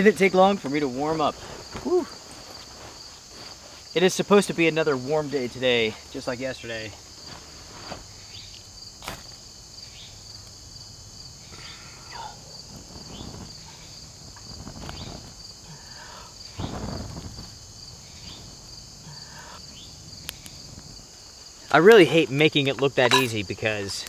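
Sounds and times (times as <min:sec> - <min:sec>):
high insect chorus: 0:00.0 - 0:24.0
rush of fire igniting: 0:12.6 - 0:15.6, 0:16.3 - 0:18.7
short chirps: 0:23.1 - 0:23.3.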